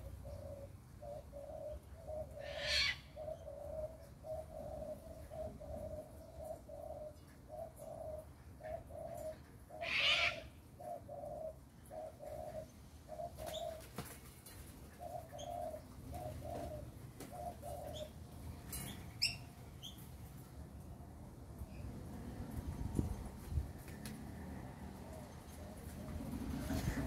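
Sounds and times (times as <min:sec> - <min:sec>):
doves cooing: 0:00.0 - 0:20.0, 0:23.9 - 0:27.0
wings flapping: 0:13.4 - 0:14.8
small birds chirping: 0:14.9 - 0:20.2.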